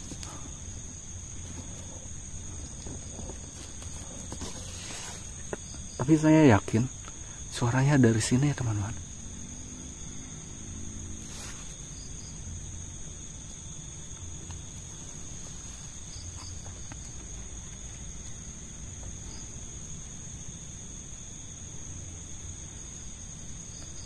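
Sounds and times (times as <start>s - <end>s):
crickets trilling: 0.0s - 24.0s.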